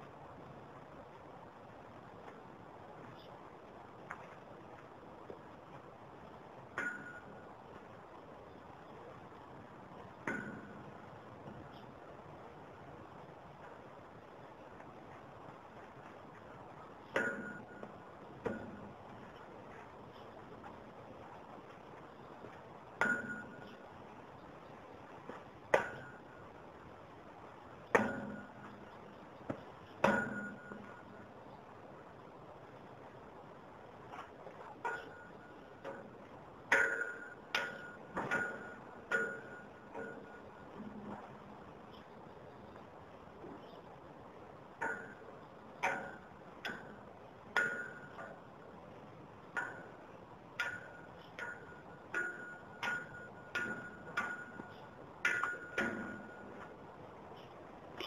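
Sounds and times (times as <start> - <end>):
metal frame struck ringing: 6.5 - 11.3, 16.5 - 20.6, 21.2 - 24.4, 25.5 - 29.2, 29.8 - 31.5, 34.7 - 41.4, 44.7 - 48.6, 49.4 - 56.8.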